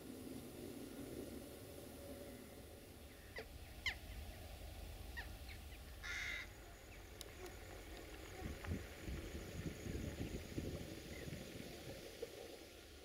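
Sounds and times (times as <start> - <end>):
crow cawing: 6.0 - 6.5.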